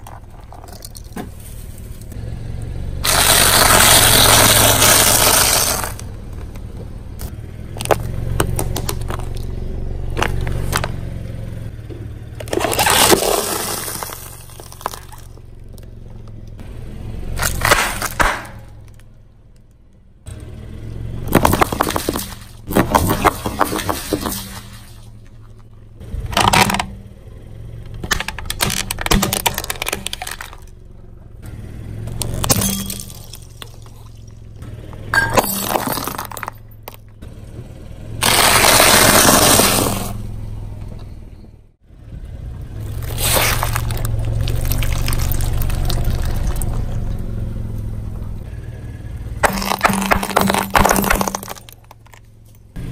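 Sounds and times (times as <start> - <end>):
car engine hum: 0.0 - 52.9
tyre crushing objects: 3.0 - 6.1, 10.1 - 11.0, 12.4 - 15.5, 17.4 - 18.7, 21.2 - 25.6, 27.9 - 30.7, 35.2 - 37.0, 38.2 - 40.2, 42.8 - 47.0, 49.4 - 52.3
sharp cracks and snaps: 17.4 - 19.8.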